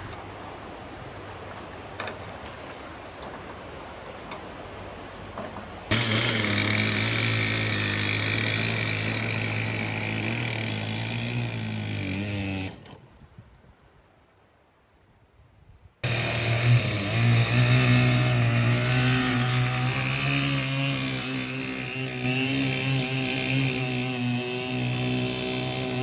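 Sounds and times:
quieter steady noise: 0.0 - 26.0
chainsaw engine at high revs: 5.9 - 12.9, 16.0 - 26.0.

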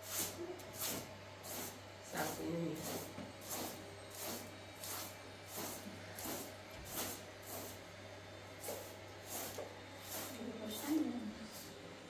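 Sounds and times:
hand broom sweeping carpet: 0.0 - 7.8, 8.6 - 11.7.

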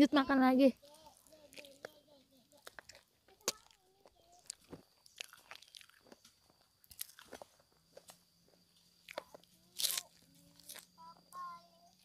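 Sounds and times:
person chewing and crunching: 0.8 - 8.2, 9.0 - 11.0.

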